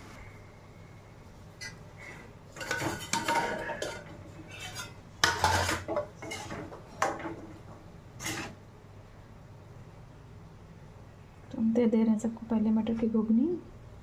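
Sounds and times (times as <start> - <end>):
metal pots and spoon clanking: 2.5 - 8.6.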